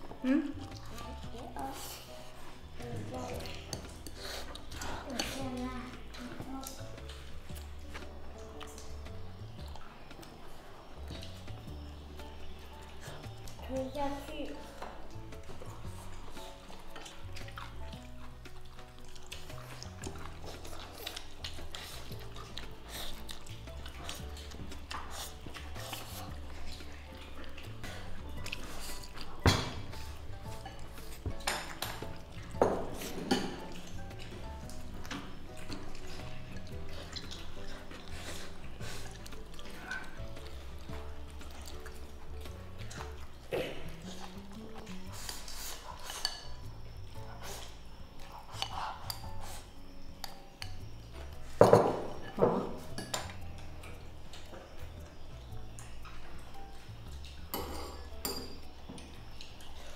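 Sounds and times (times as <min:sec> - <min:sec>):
chopsticks and spoons clinking bowls: 0:00.0 - 0:59.9
soft background music: 0:00.0 - 0:59.9
tableware clattering: 0:29.4 - 0:34.3, 0:51.6 - 0:53.6, 0:57.4 - 0:59.2.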